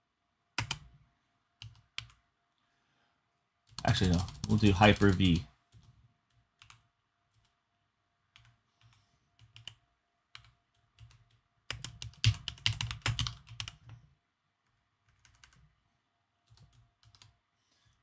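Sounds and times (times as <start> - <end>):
typing on computer keyboard: 0.6 - 0.9, 1.6 - 2.2, 3.7 - 7.6, 8.3 - 14.0, 15.0 - 15.7, 16.4 - 17.4.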